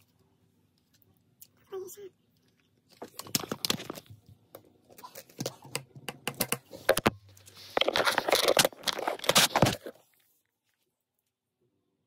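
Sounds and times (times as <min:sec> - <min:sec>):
clicks and taps on phone: 0:05.7 - 0:07.2.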